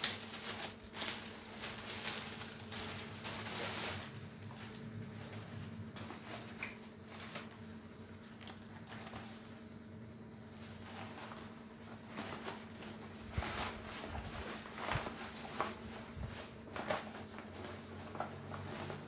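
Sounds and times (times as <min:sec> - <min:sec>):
plastic mailer bag crinkling: 0:00.0 - 0:07.6
nylon bag rustling: 0:00.0 - 0:09.6, 0:10.5 - 0:19.0.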